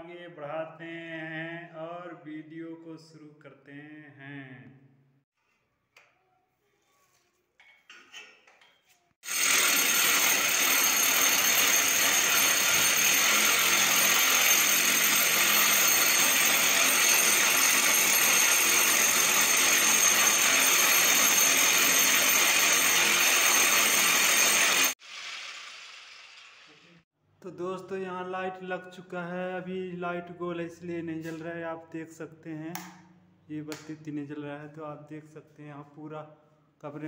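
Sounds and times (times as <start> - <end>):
hammer drill boring into wall: 9.2 - 26.7.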